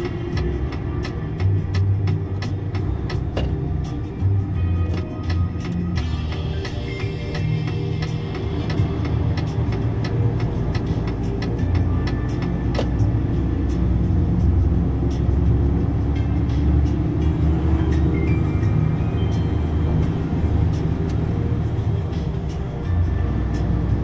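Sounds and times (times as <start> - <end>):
vehicle engine and road rumble: 0.0 - 24.0.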